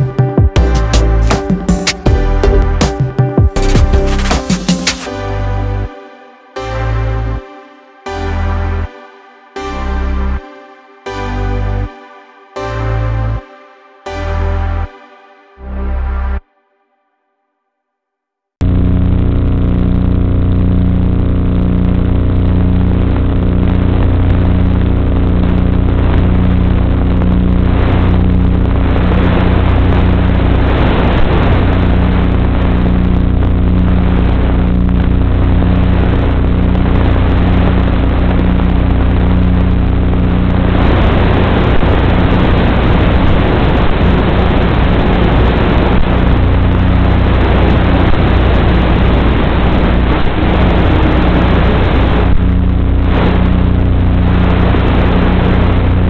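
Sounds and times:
wind rush on microphone: 0:27.2 - 0:56.0.

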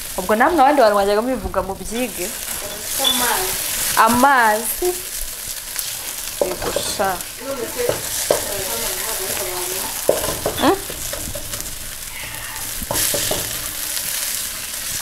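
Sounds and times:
food sizzling in a pan: 0:00.0 - 0:15.0
wooden spoon knocking pan: 0:06.3 - 0:14.1.

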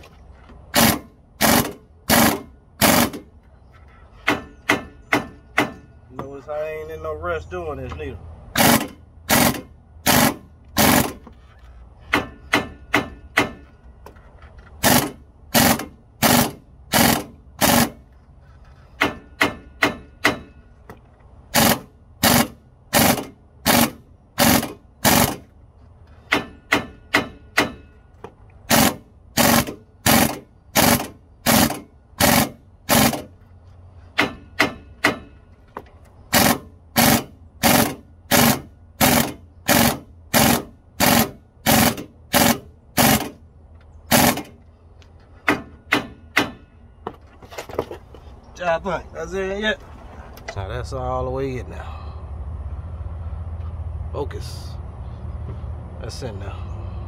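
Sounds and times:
impact wrench hammering: 0:00.7 - 0:03.3, 0:04.2 - 0:06.3, 0:08.6 - 0:11.3, 0:12.0 - 0:13.8, 0:14.8 - 0:18.0, 0:18.9 - 0:25.5, 0:26.1 - 0:33.4, 0:34.1 - 0:35.5, 0:36.3 - 0:43.4, 0:44.1 - 0:44.6, 0:45.4 - 0:46.8.

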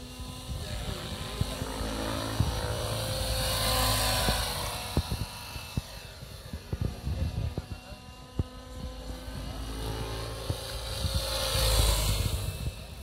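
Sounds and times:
model helicopter motor whine: 0:00.0 - 0:13.0.

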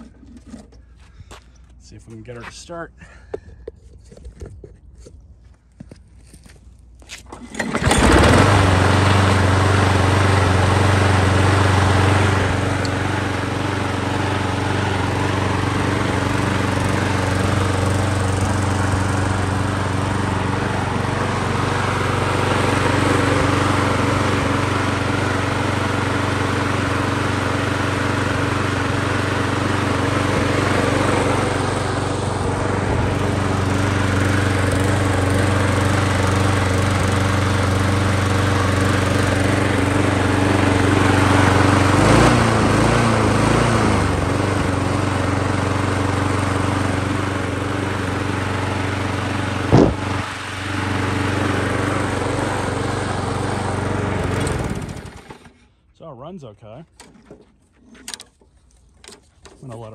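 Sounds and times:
lawn mower engine running: 0:00.0 - 0:01.7, 0:07.0 - 0:55.9
sharp knock: 0:49.7 - 0:50.0.

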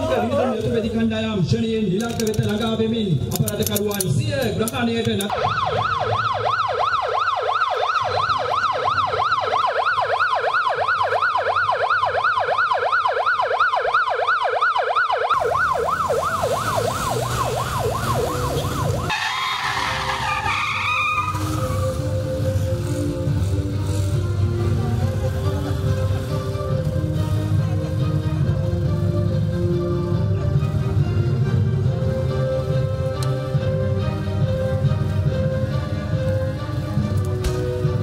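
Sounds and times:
vehicle noise: 0:00.0 - 0:38.0
ambulance siren yelping: 0:05.2 - 0:30.5.

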